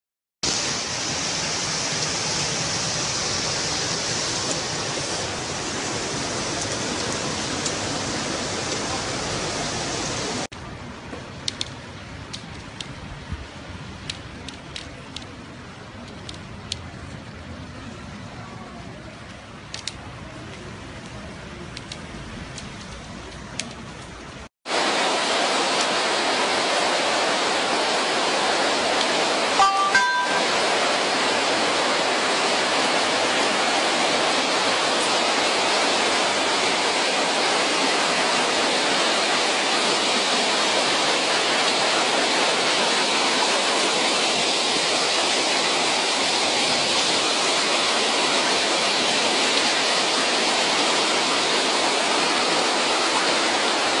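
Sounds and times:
floodwater rushing: 0.4s - 10.6s, 11.3s - 54.0s
short beeps: 29.6s - 30.6s.

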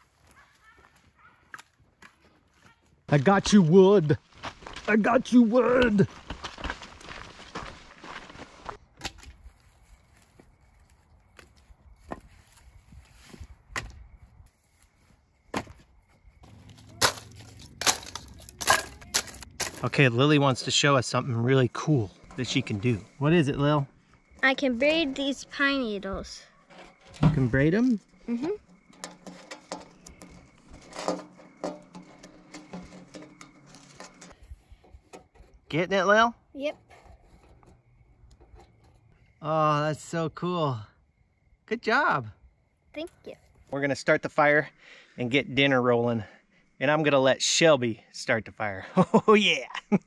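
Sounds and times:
firewood pieces knocking together: 16.4s - 20.0s, 28.6s - 34.4s.

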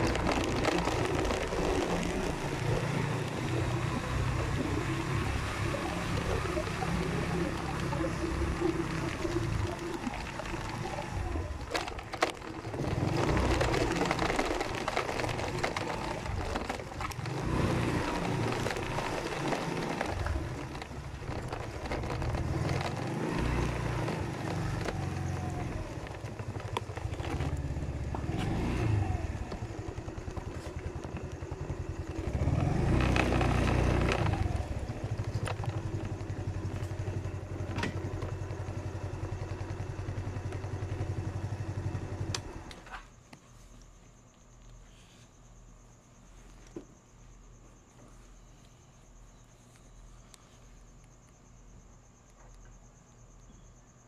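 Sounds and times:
motorcycle engines running: 0.0s - 42.9s.

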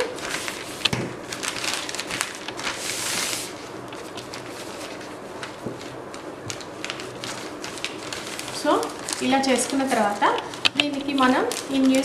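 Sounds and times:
newspaper rustling: 0.0s - 12.0s.

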